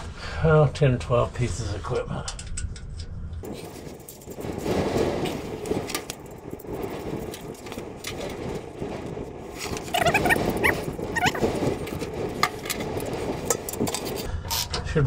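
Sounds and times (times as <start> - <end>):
short high squeaks: 9.9 - 11.5.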